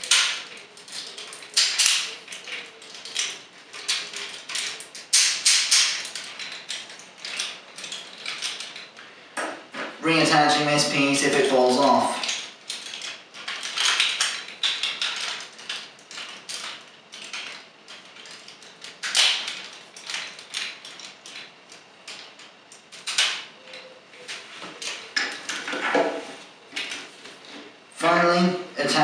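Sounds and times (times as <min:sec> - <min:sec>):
plastic toy parts clicking: 0:00.0 - 0:09.0, 0:12.2 - 0:25.8.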